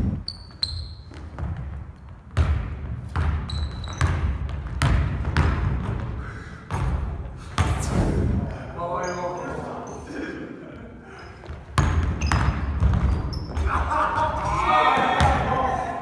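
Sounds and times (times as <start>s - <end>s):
sneakers squeaking on floor: 0.1s - 7.9s, 9.0s - 10.1s, 11.1s - 13.8s
basketball bouncing on wooden floor: 0.4s - 7.8s, 11.4s - 13.6s.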